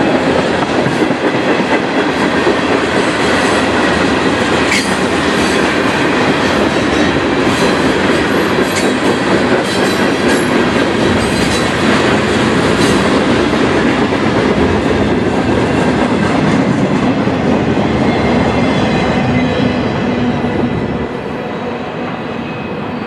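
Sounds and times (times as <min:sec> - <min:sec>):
train wheels running over rails: 0:00.0 - 0:21.2.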